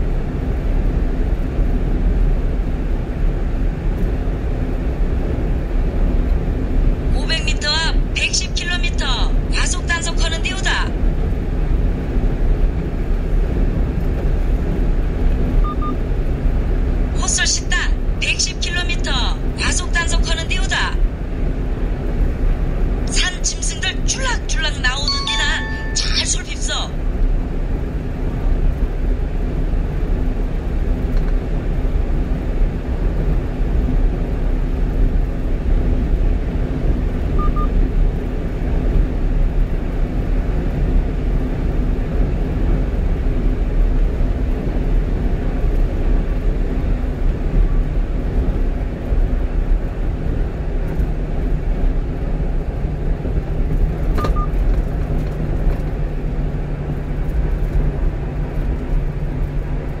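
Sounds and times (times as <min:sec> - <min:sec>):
low hum: 0:00.0 - 1:00.0
truck road and engine noise: 0:00.0 - 1:00.0
electronic double beep: 0:25.0 - 0:26.3.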